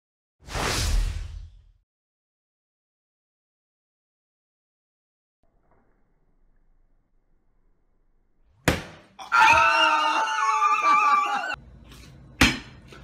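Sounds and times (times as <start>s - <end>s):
people screaming excitedly: 9.2s - 11.6s.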